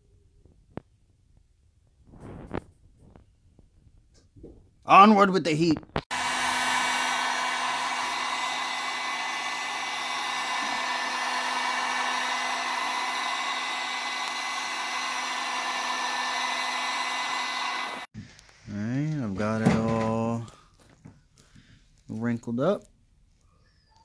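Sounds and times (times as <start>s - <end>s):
heat gun fan blowing: 6.1s - 20.6s.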